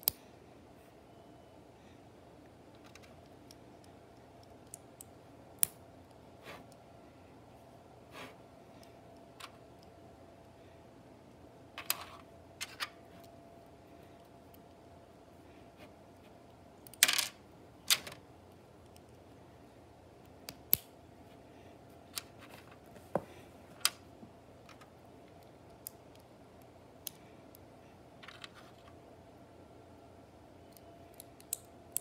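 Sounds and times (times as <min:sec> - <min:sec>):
plastic pieces clicking together: 0:16.8 - 0:18.2.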